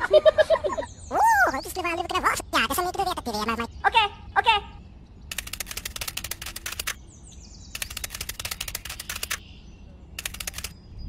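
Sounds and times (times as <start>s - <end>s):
rapid even clicking: 5.3s - 7.0s, 7.8s - 9.4s, 10.2s - 10.7s.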